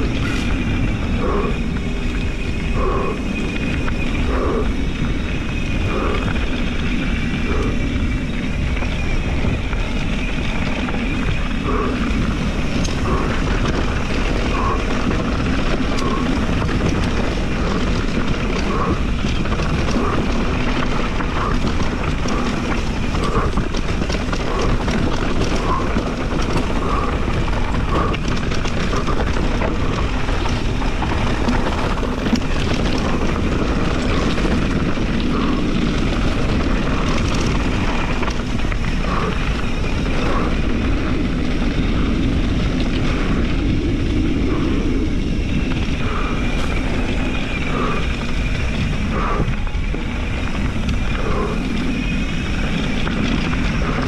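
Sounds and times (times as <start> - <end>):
bike tyres rolling on gravel: 0.0 - 54.0
wind rush over microphone: 0.0 - 54.0.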